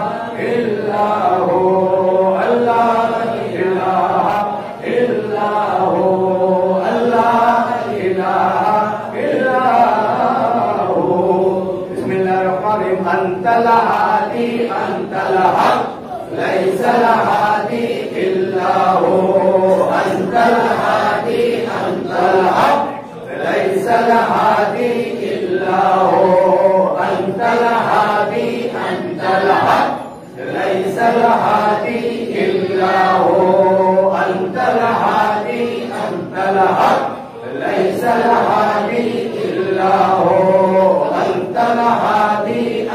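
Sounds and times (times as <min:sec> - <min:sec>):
man chanting a hymn: 0:00.0 - 0:42.9.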